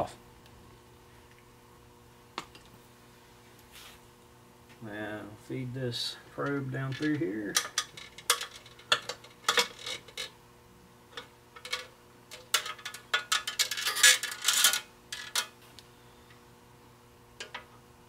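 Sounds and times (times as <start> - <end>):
small parts clicking and rattling: 6.9 - 10.3, 11.2 - 15.5.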